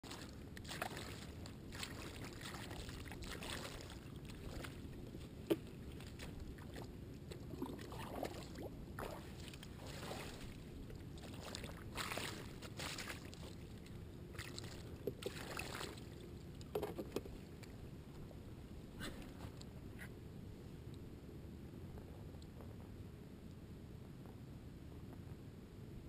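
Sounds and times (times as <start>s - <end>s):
water splashing and sloshing: 0.0s - 19.7s.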